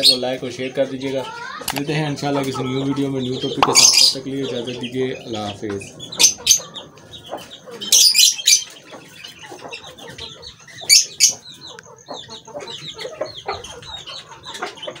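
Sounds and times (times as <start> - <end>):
cage birds chirping: 0.0 - 15.0
hens clucking: 0.0 - 15.0
shrill bird bursts: 3.5 - 4.2.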